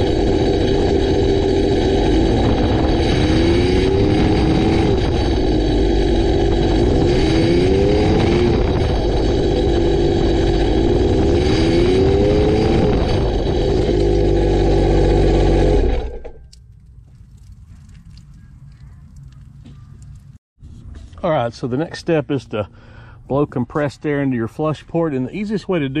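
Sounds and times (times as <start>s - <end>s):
jet boat engine revving: 0.0s - 16.4s
water blowing out of exhaust: 0.0s - 18.4s.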